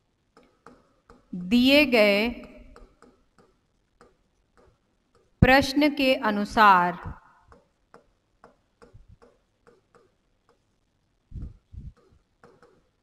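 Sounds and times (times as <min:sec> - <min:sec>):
stylus tapping on touchscreen: 0:02.4 - 0:05.6, 0:07.4 - 0:10.7, 0:11.9 - 0:12.9.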